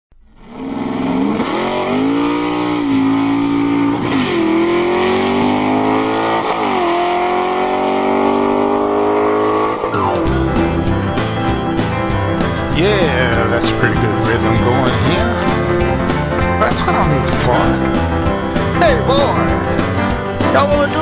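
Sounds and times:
car engine accelerating through gears: 0.2s - 21.0s.

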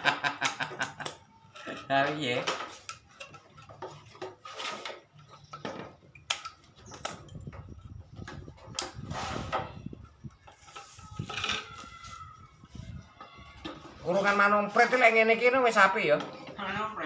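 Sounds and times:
wooden cage parts clicking and knocking: 0.2s - 12.2s.

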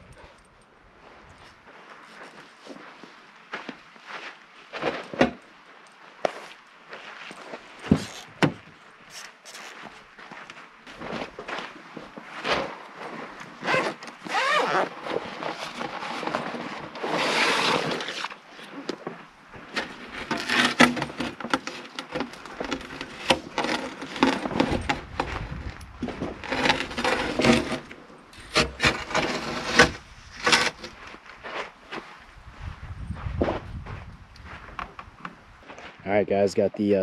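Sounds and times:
fabric and panel rubbing: 13.6s - 18.3s.

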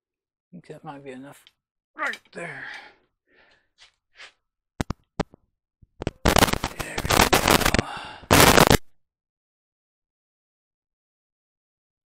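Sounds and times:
rapid crackling clatter: 6.0s - 8.9s.

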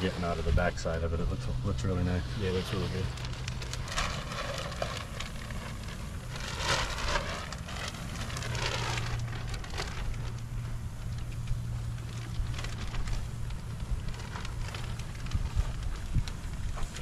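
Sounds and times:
low steady hum: 0.0s - 17.0s
tape being peeled off: 2.4s - 17.0s.

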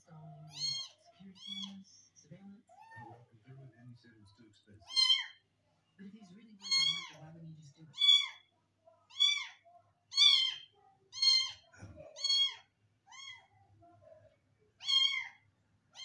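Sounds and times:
kitten meowing: 0.5s - 1.8s, 4.9s - 5.4s, 6.6s - 7.2s, 7.9s - 8.4s, 9.1s - 13.5s, 14.8s - 15.4s.

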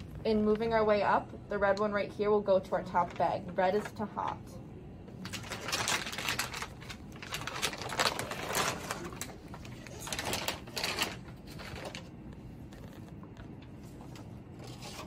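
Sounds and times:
plastic bag crinkling: 5.2s - 15.0s.

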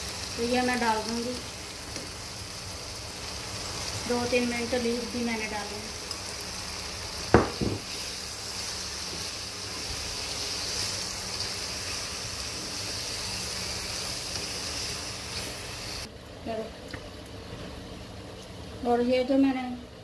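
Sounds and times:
food sizzling in a frying pan: 0.0s - 16.1s
sharp knock: 7.4s - 7.8s.

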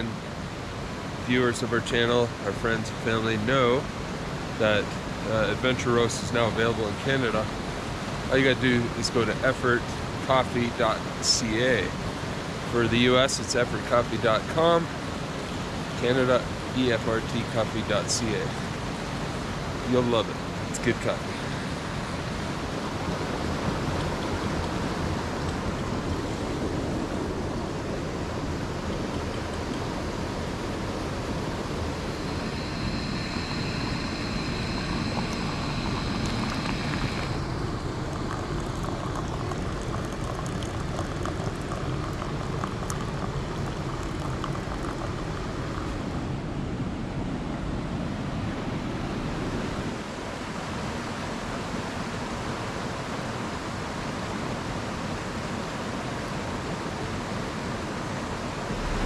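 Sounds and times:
creek rushing: 18.3s - 41.7s, 58.4s - 59.0s
high hiss: 29.7s - 39.6s, 58.6s - 59.0s.

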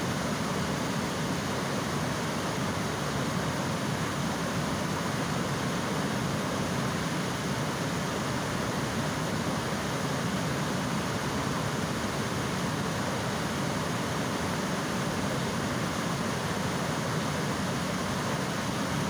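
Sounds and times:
water rushing over dam: 0.0s - 19.0s.

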